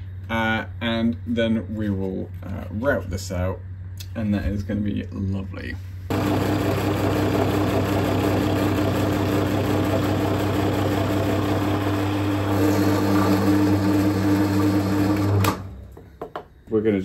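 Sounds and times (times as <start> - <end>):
drill press boring wood: 6.1 - 15.7.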